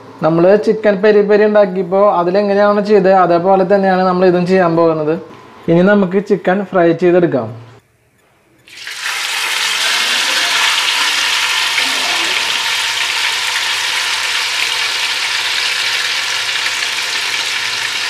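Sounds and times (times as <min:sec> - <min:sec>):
chicken frying in a pan: 0:08.7 - 0:18.0.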